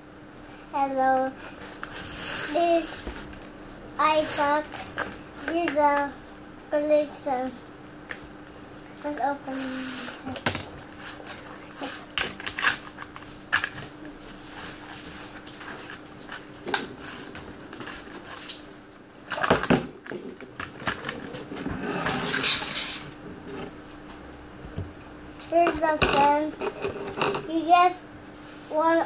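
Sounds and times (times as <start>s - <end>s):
rustling and scraping: 8.2s - 27.6s.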